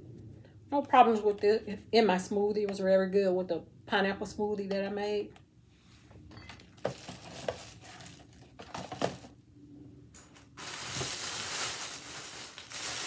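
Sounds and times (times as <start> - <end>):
plastic bag crinkling: 6.6 - 9.3, 10.5 - 13.0.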